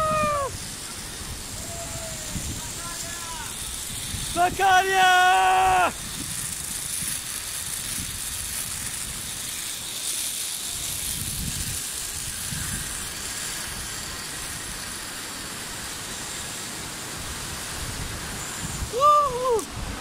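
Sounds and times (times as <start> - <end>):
wind buffeting microphone: 0.0 - 4.8, 5.9 - 9.6, 10.8 - 14.7, 17.2 - 20.0
zipline trolley hissing on cable: 0.0 - 20.0.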